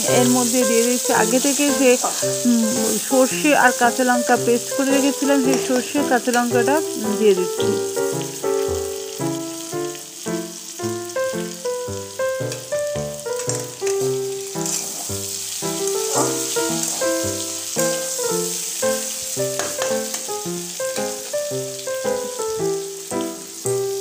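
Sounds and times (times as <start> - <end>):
background music melody: 0.0 - 24.0
okra sizzling in oil: 0.0 - 24.0.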